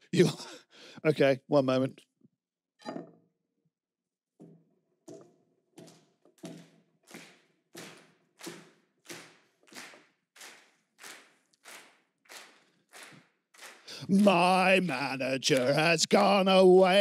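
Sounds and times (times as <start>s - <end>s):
rhythmic thumps and claps: 6.4s - 17.0s.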